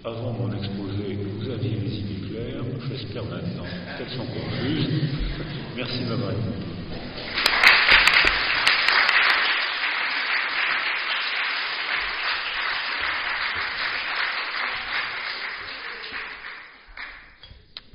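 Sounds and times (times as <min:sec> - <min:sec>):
audience applauding: 0:07.1 - 0:17.4.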